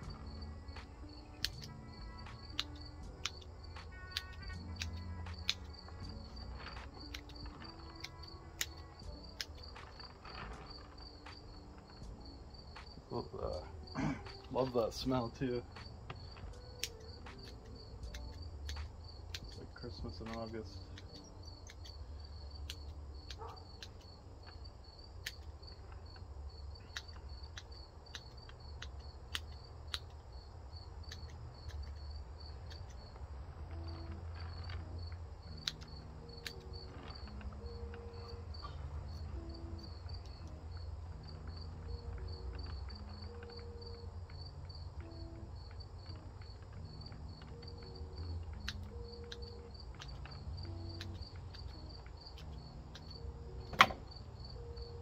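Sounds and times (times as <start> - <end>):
cricket chirping: 0.0 - 55.0
clippers snipping twigs: 0.8 - 12.1, 13.8 - 25.7.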